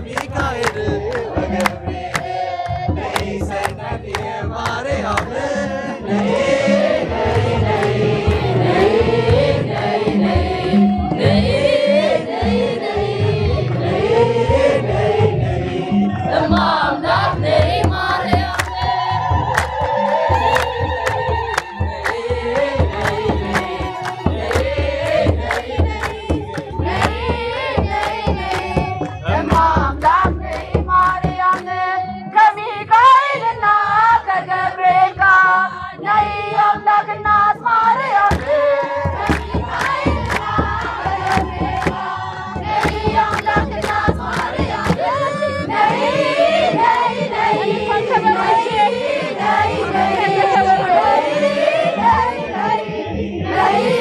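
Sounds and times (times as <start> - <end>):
hand drum beat: 0.0 - 14.8, 16.4 - 31.8, 38.3 - 48.7
rhythmic hand clapping: 0.0 - 15.8, 16.6 - 32.2, 37.7 - 52.9
crowd singing a hymn: 0.0 - 54.0.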